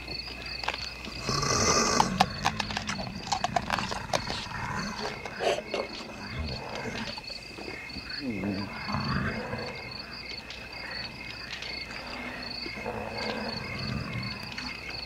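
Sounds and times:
crickets chirping: 0.0 - 15.0
chewing and crunching bones: 0.2 - 8.0.

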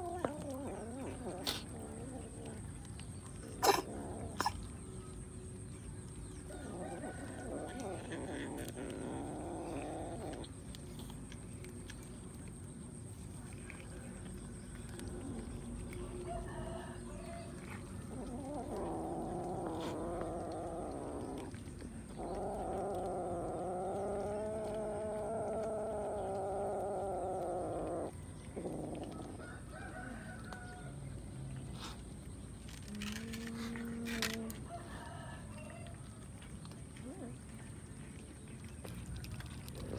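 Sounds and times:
cat growling yowl: 0.0 - 2.8, 3.4 - 4.8, 6.4 - 10.6, 14.8 - 29.5.

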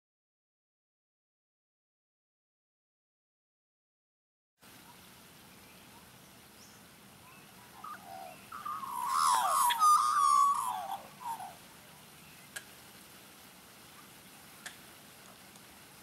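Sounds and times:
magpie warbling call: 7.3 - 11.6.

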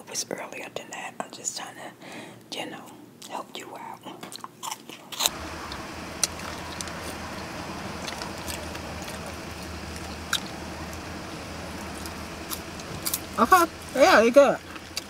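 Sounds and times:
low rumble inside car cabin: 5.3 - 15.0.

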